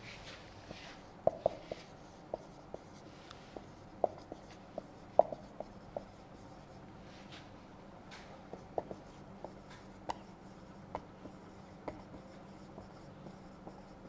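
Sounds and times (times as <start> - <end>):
marker squeaking on whiteboard: 1.2 - 3.0, 3.6 - 6.8, 8.5 - 14.0.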